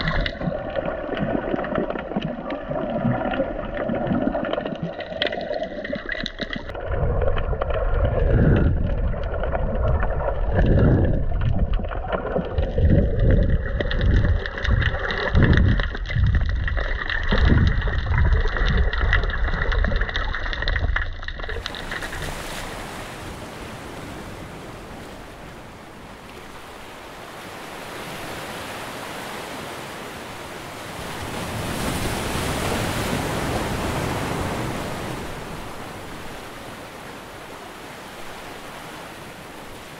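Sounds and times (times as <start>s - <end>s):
low underwater rumbles: 0.0s - 26.7s
underwater water sloshing and bubbling: 0.0s - 39.9s
sea waves hissing: 21.6s - 39.9s.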